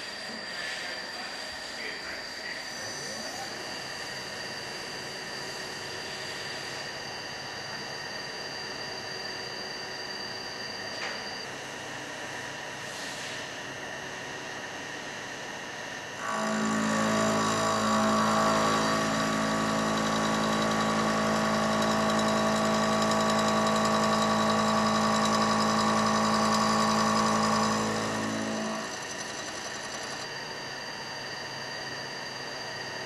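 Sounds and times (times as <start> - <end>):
milling machine running: 16.2 - 30.9.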